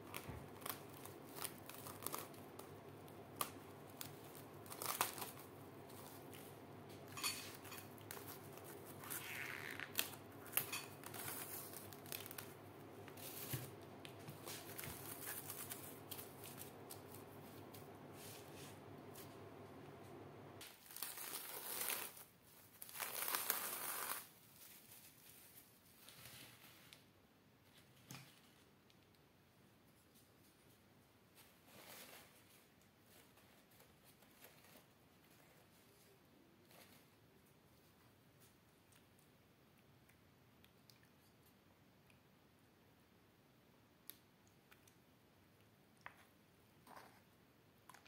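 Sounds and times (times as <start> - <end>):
low steady hum: 0.0 - 20.6
cling film crinkling and rustling: 0.0 - 27.1.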